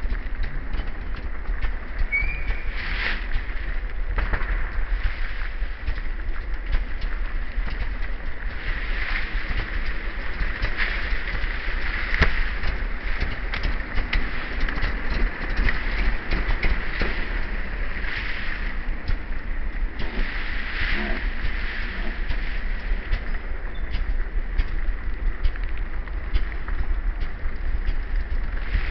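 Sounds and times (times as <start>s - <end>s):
wind rumble on microphone: 0.0s - 28.9s
small clicks: 22.2s - 28.9s.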